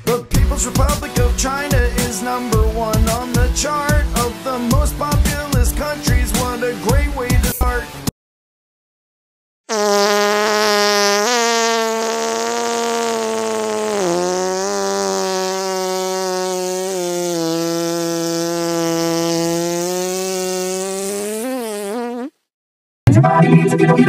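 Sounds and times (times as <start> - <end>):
long buzzy held note: 9.7 - 21.0.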